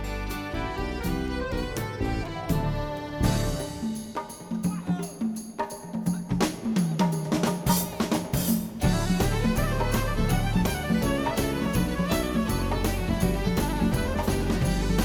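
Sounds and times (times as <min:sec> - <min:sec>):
drum and percussion beats: 0:00.0 - 0:15.0
steady low bass: 0:08.8 - 0:15.0.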